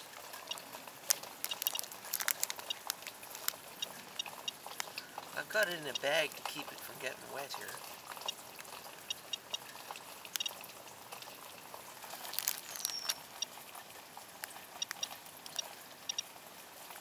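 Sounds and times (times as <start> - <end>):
running water: 0.0 - 17.0
steady rain: 0.0 - 17.0
geiger counter ticks: 0.4 - 11.6, 14.4 - 16.3.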